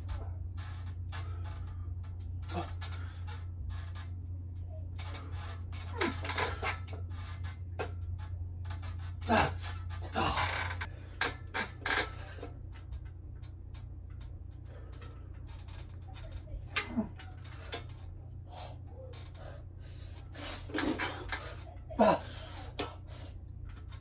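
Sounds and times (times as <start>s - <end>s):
steady low hum: 0.0s - 24.0s
man grunting with effort: 9.2s - 10.5s, 22.0s - 22.4s.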